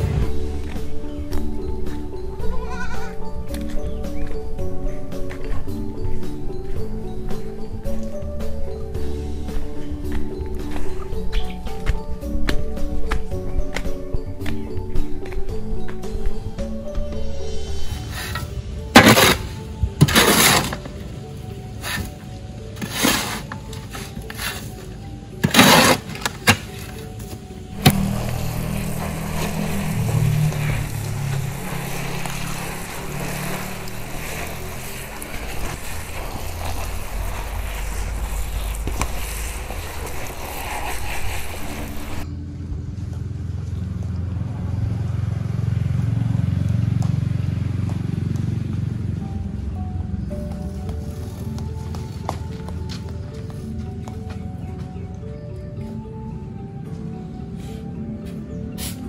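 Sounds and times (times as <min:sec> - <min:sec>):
shovel scraping in wheelbarrow: 0:17.9 - 0:42.3.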